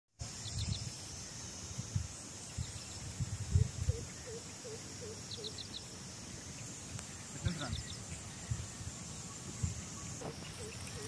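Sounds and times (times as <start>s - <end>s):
insect buzz: 0.2s - 11.0s
bird chirps: 2.4s - 11.0s.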